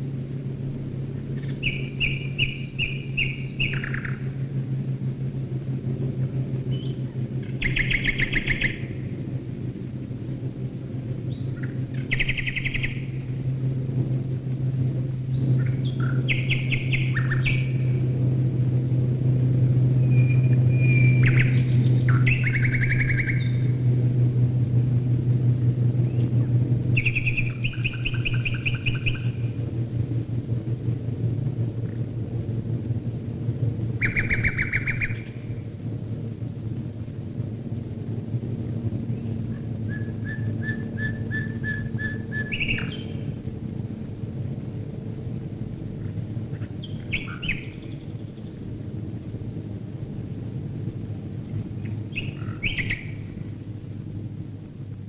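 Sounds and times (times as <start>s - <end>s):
aircraft piston engines droning: 0.0s - 55.0s
nightingale singing: 1.4s - 4.3s, 6.7s - 9.0s, 11.3s - 13.3s, 15.3s - 17.9s, 20.0s - 23.8s, 27.0s - 29.5s, 33.9s - 35.5s, 39.9s - 43.3s, 46.6s - 48.6s, 51.8s - 53.3s.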